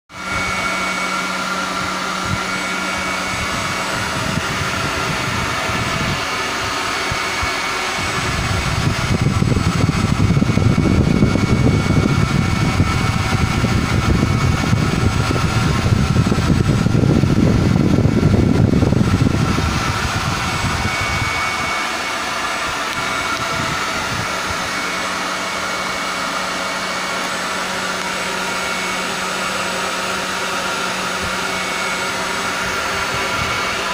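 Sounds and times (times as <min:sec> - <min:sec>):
electric ducted fans whirring: 0:00.1 - 0:33.9
deep rush of air: 0:00.2 - 0:25.6.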